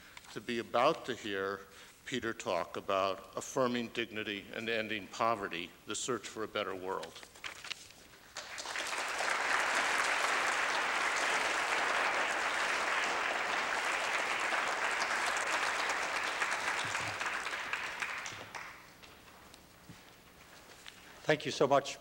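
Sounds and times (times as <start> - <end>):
audience applauding: 8.3 - 19.1.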